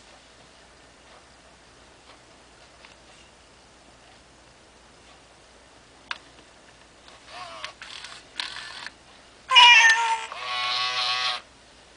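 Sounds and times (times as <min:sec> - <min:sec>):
toy cat meowing: 0:09.5 - 0:11.5.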